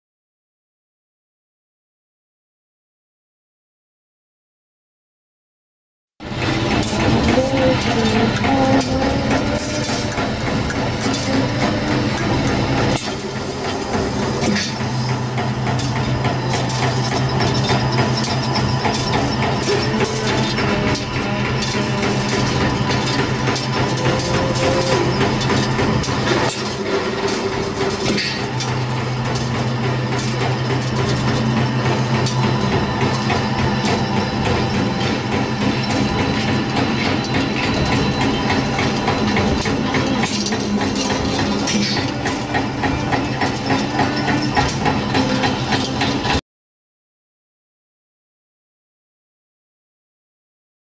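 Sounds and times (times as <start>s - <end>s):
motor hum: 6.2s - 46.4s
wire coiling machine clattering: 6.2s - 46.4s.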